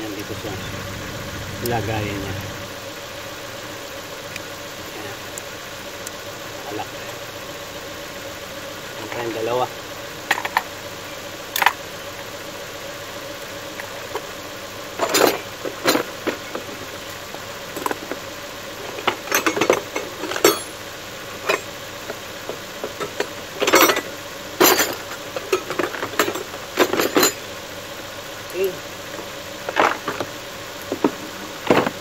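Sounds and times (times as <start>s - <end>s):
metal tools clattering into toolbox: 15.0s - 16.1s, 19.0s - 20.8s, 22.9s - 27.4s.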